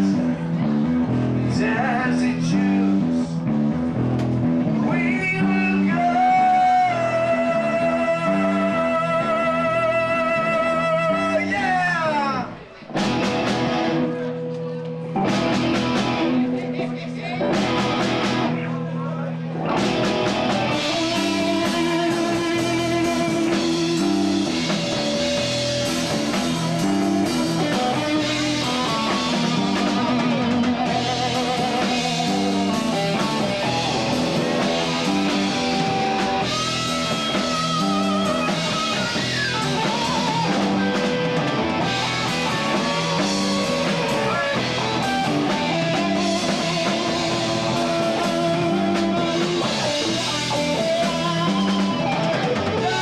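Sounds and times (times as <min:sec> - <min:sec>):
bass guitar: 0:00.0 - 0:53.0
electric guitar: 0:00.0 - 0:53.0
drum kit steady beat: 0:12.8 - 0:14.3, 0:15.0 - 0:19.0, 0:19.6 - 0:53.0.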